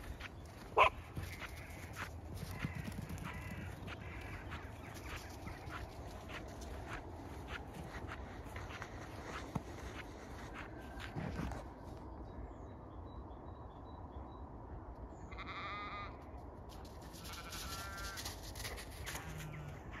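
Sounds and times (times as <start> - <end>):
low outdoor background hum: 0.0 - 20.0
sheep bleating: 15.3 - 16.2, 17.0 - 18.3.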